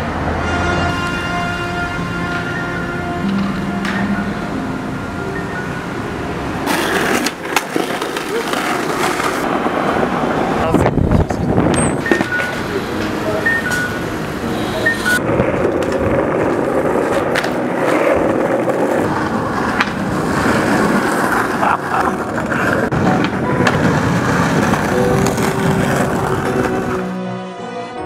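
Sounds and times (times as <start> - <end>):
skateboard wheels rumbling: 1.1 - 27.2
skateboard clacks: 6.6 - 10.6, 11.2 - 13.9, 15.5 - 27.1.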